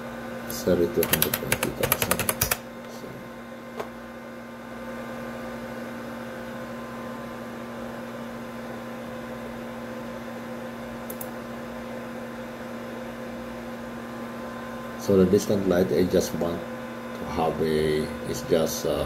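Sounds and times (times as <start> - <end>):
electrical hum with faint whine: 0.0 - 19.0
sharp click: 11.1 - 11.4.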